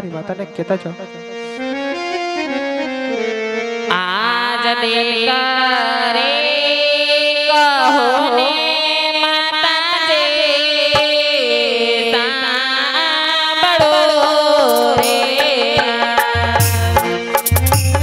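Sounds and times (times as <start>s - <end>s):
person singing: 1.4s - 18.0s.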